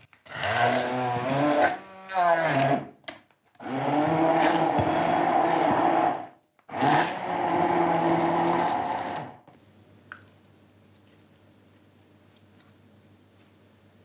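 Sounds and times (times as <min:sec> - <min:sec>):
stick blender motor: 0:00.2 - 0:02.9, 0:03.6 - 0:09.5.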